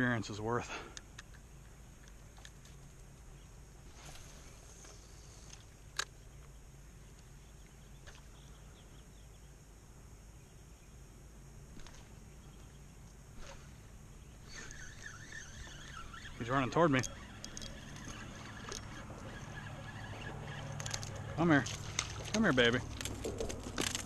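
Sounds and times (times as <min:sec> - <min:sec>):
insect hum: 0:00.0 - 0:24.0
faint ticks: 0:00.7 - 0:03.4, 0:14.4 - 0:24.0.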